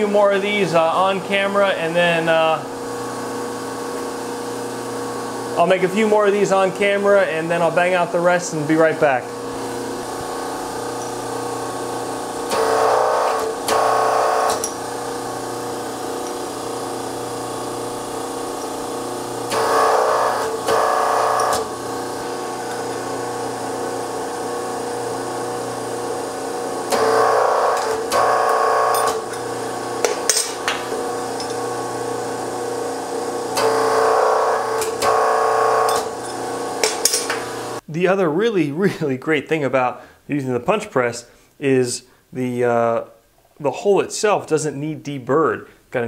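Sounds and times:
hydraulic power unit humming: 0.0 - 37.9
hydraulic pump straining: 9.0 - 37.8.

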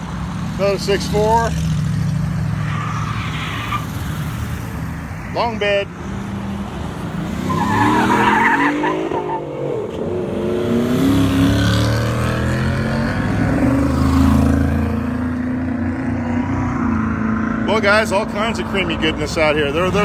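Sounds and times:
tyres screeching: 2.4 - 4.2, 7.3 - 9.8
car engine revving: 6.0 - 20.0.

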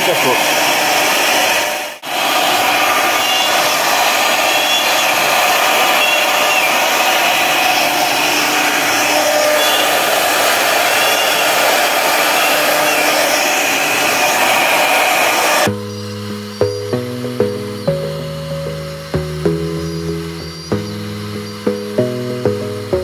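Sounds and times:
router spindle milling plastic: 0.0 - 15.7.

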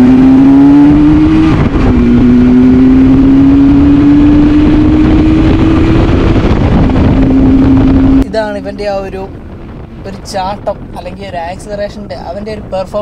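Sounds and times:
two-stroke engine accelerating: 0.0 - 8.2.

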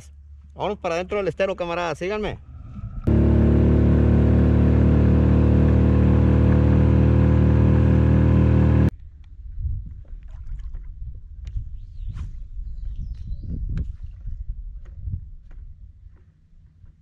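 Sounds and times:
boat motor running: 3.0 - 8.9.

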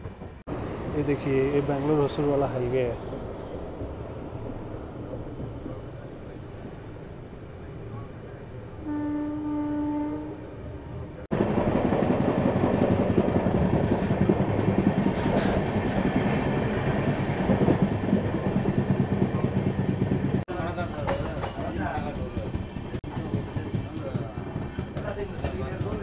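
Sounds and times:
train rumbling at speed: 0.0 - 26.0
train horn: 8.8 - 10.9.

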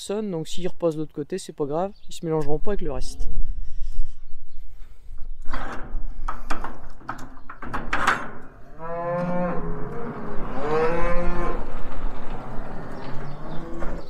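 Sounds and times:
cattle mooing: 8.5 - 14.0.

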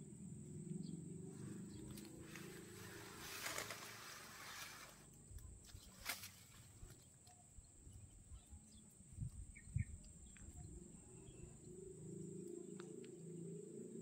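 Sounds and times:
faint ticks: 4.8 - 13.4
high-pitched insect drone: 7.0 - 14.0.

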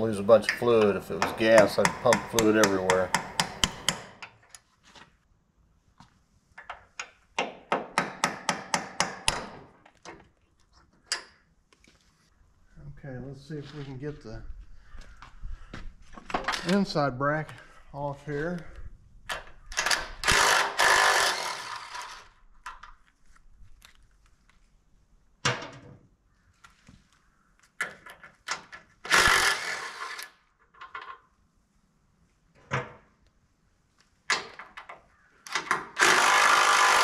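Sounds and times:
impact driver hammering: 0.7 - 4.2, 7.4 - 9.6, 36.0 - 37.0
tool knocking on metal: 0.8 - 4.0.

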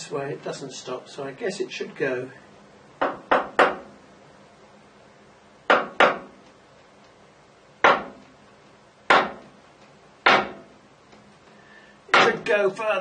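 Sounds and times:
hammer tapping metal: 5.7 - 6.3, 7.8 - 8.3, 9.1 - 9.5, 10.2 - 10.7, 12.1 - 12.5.

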